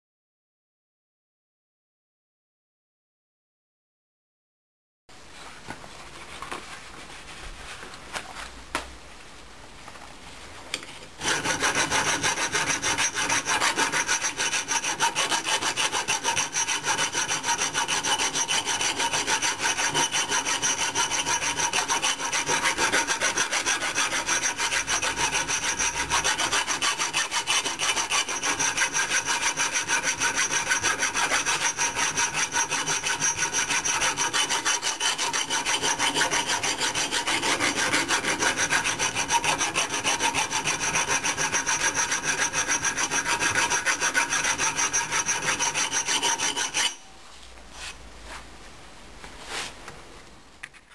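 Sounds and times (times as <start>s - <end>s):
file rasping on axe blade: 11.2s - 47.1s.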